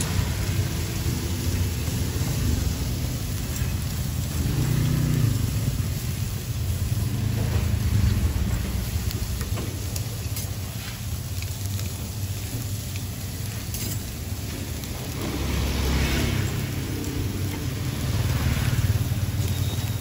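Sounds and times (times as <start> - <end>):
meat sizzling on a grill: 0.0 - 20.0.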